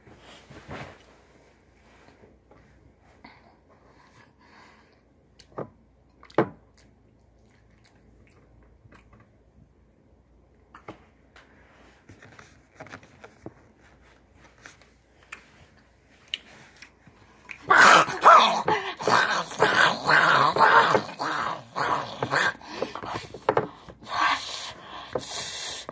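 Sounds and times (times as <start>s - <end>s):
soft eating sounds: 3.5s - 9.6s, 14.1s - 23.4s
loud rough growling: 17.7s - 23.1s.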